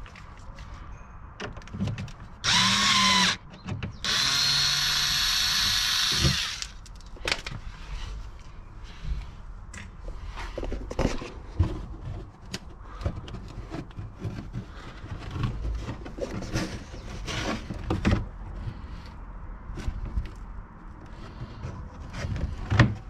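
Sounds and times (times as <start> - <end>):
plastic liner rustling and scraping: 10.2 - 19.0.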